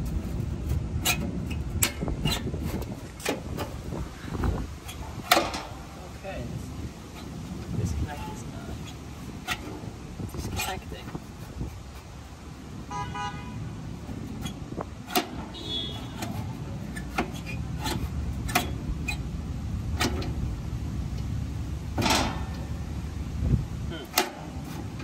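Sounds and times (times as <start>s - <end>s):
traffic rumble: 0.0s - 25.0s
car horn toot: 12.9s - 13.7s, 15.4s - 16.4s.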